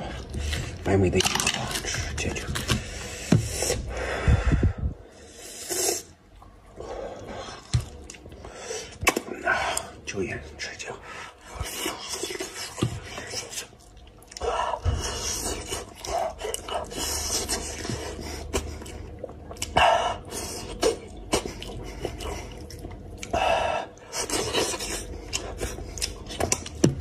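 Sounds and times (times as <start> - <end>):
wet chewing and lip-smacking: 7.6 - 9.9, 11.6 - 23.4, 24.0 - 27.0.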